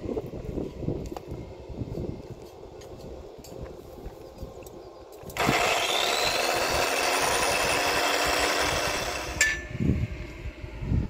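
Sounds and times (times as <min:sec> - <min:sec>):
power tool whining: 0:05.3 - 0:10.5.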